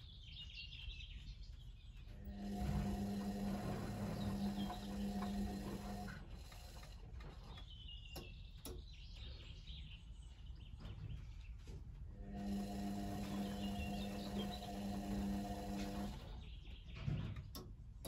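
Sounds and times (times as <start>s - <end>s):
washing machine drum motor humming: 2.1s - 7.6s, 12.1s - 16.6s.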